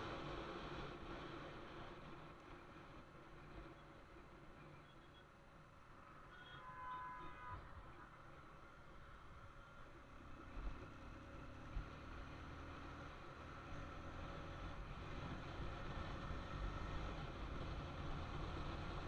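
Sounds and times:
wind rushing on camera: 10.3 - 19.0.

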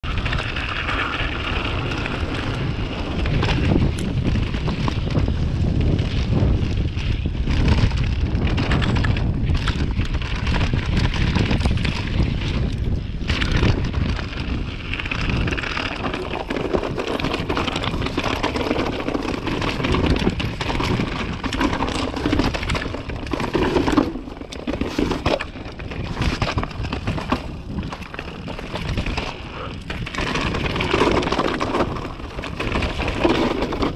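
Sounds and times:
bike rattling: 0.0 - 33.9
wind buffeting microphone: 0.0 - 33.9
tyres crunching over stones: 13.3 - 33.9.

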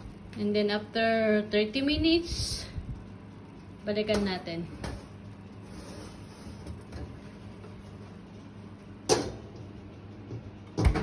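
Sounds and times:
oven fan humming: 0.0 - 11.0.

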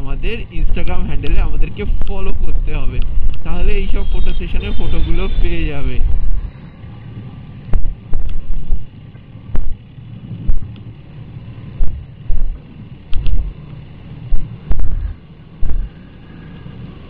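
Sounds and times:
road and engine rumble: 0.0 - 17.0
wind buffeting microphone: 0.2 - 6.7, 7.6 - 10.9, 14.2 - 16.1.

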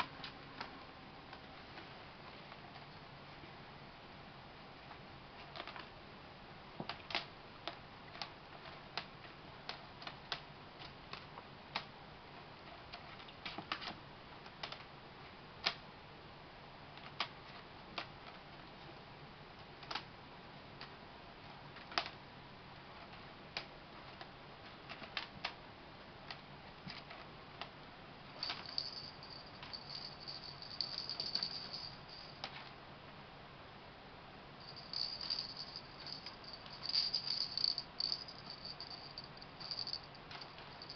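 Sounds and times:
light rattling: 28.4 - 32.5, 34.6 - 40.9
kittens playing on hardwood floor: 28.4 - 32.6, 34.6 - 40.9.

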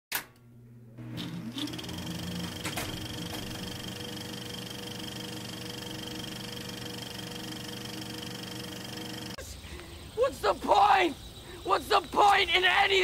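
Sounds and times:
mechanical hum and whir: 0.1 - 9.4.

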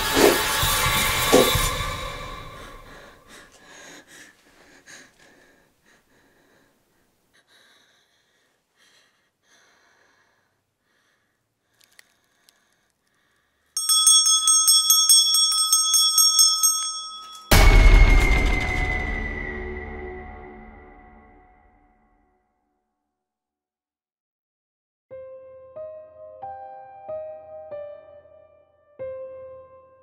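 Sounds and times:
small metal bell ringing rapidly: 13.8 - 17.8
loud music: 17.5 - 21.0.

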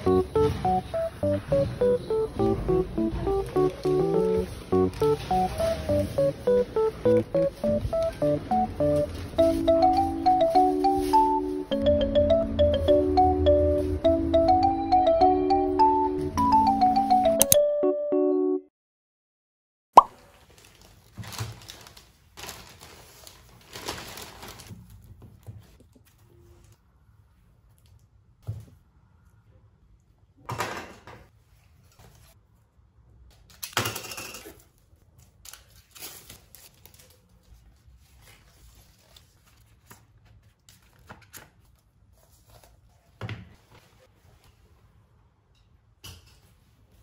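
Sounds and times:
plastic bag and packaging rustling: 2.7 - 11.7, 20.2 - 26.8, 34.6 - 42.9.

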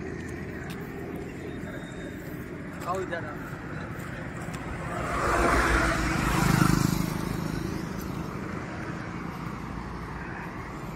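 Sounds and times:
vehicle passing by: 3.4 - 10.9.

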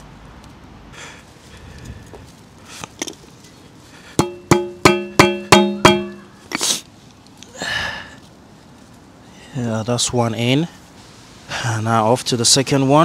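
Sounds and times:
hammer striking metal: 4.2 - 6.3.

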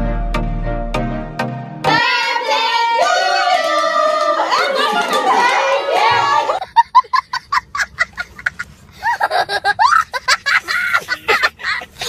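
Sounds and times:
young child laughing: 6.4 - 12.0.

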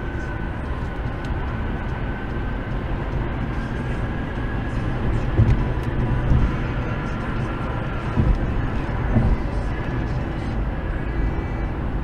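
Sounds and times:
tyre and engine rumble: 0.0 - 12.0
light bumps: 4.6 - 10.2.

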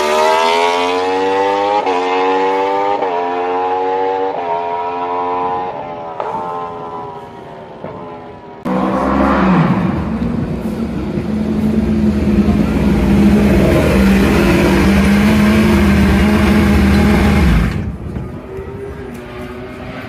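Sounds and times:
motorcycle engine running: 8.7 - 18.2.

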